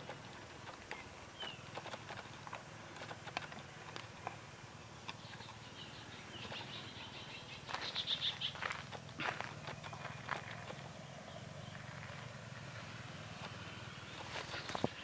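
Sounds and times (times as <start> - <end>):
bird chirps: 0.9 - 2.0, 4.9 - 12.4, 13.2 - 15.0.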